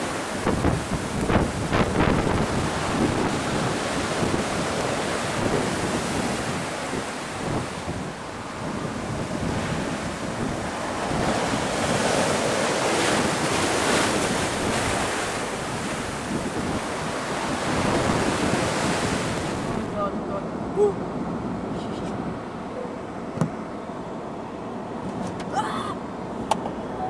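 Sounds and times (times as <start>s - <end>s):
waves breaking against sea wall: 0.0s - 20.0s
seawater rushing across road: 0.0s - 25.2s
wind battering microphone: 0.0s - 25.3s.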